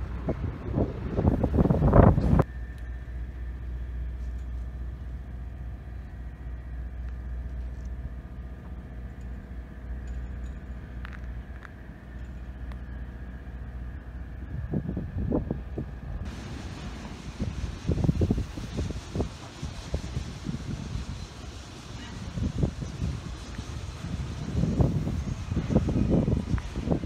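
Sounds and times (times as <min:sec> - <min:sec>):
wind gusting on microphone: 0:00.0 - 0:02.6, 0:10.8 - 0:27.0.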